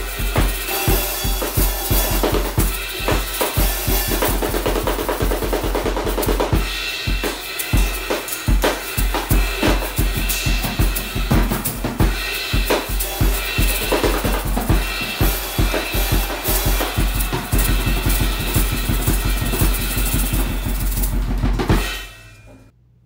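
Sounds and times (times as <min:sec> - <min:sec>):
bass drum beat: 0:00.0 - 0:22.2
snare drum hits: 0:00.0 - 0:22.2.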